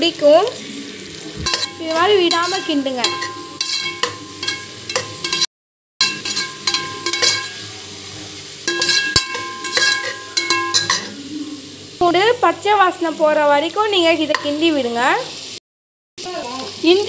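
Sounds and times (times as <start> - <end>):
oil sizzling: 0.0 - 15.6, 16.2 - 17.0
metal spoon scraping a pot: 1.4 - 7.9, 8.6 - 11.2
metal pot ringing from knocks: 1.5 - 5.4, 6.0 - 7.6, 8.7 - 11.1.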